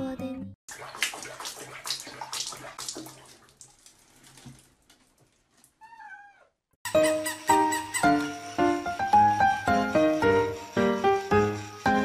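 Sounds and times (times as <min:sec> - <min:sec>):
water splashing in plastic basin: 0:00.7 - 0:05.8.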